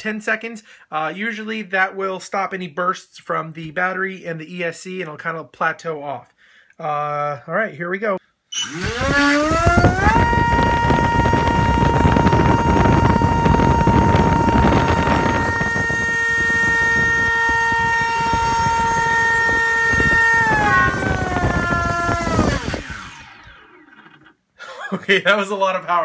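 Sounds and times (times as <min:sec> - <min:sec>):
electric motor whining: 0:08.5 - 0:24.4
propeller wash rushing: 0:08.6 - 0:24.3.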